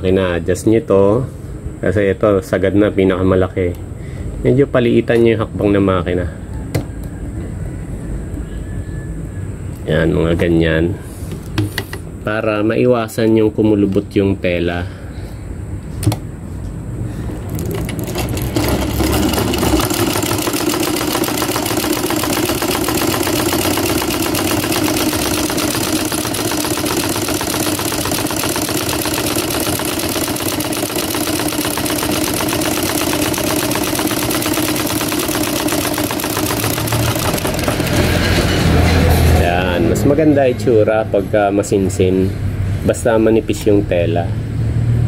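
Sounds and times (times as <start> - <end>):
sewing machine clattering: 17.5 - 38.6
sewing machine click: 17.6 - 38.2.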